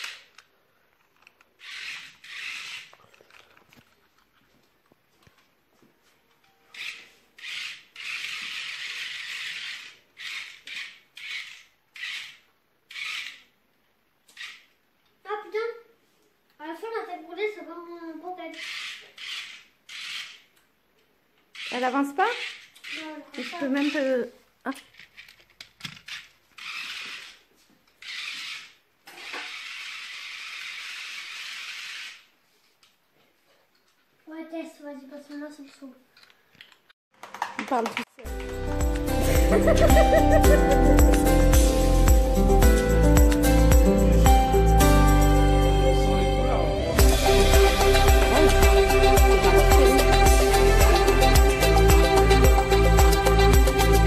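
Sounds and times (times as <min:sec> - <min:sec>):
toy car motor whirring: 0:00.0 - 0:00.4, 0:01.2 - 0:03.4, 0:06.7 - 0:13.6, 0:14.3 - 0:14.8, 0:18.5 - 0:20.5, 0:21.5 - 0:24.2, 0:24.8 - 0:32.4.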